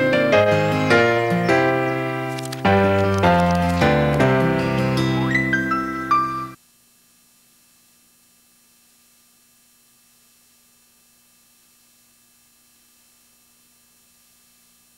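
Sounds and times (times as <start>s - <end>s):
faint electrical hum and hiss: 6.5s - 14.9s.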